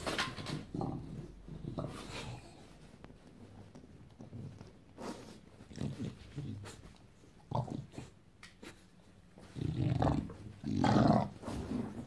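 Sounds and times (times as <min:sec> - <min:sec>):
dog growling: 0:00.5 - 0:02.7, 0:07.4 - 0:08.2, 0:09.4 - 0:11.5.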